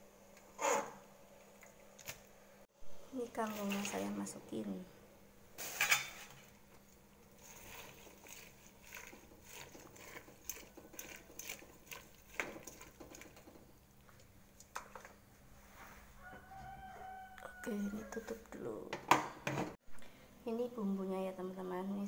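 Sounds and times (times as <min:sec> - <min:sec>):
water boiling: 0:03.2 - 0:04.8, 0:05.8 - 0:15.4.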